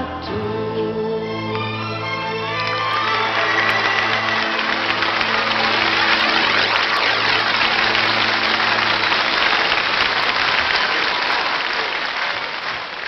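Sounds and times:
band held chord: 1.3 - 11.2
audience applauding: 1.5 - 13.0.

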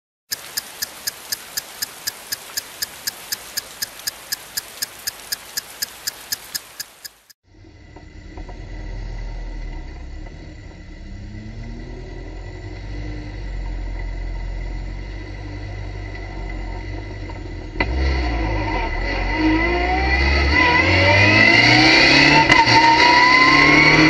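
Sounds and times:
clock-like ticking: 0.3 - 7.4.

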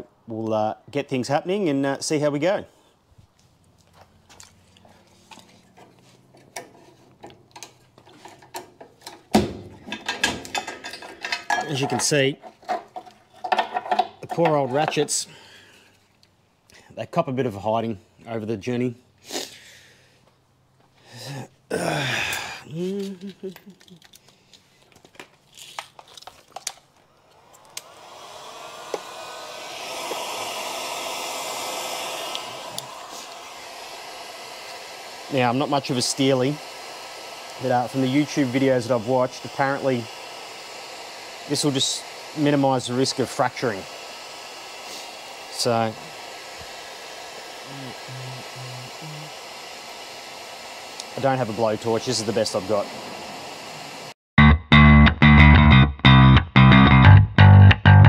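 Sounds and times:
tools clicking and knocking: 5.3 - 15.1
heat gun fan blowing: 21.1 - 24.2, 26.6 - 54.2
metallic clicks and clinks: 22.9 - 24.6.

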